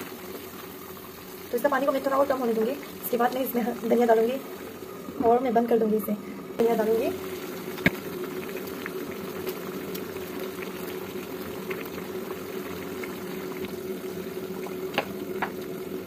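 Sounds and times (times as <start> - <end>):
faint steady hum: 0.0 - 16.0
curry bubbling in a wok: 6.6 - 16.0.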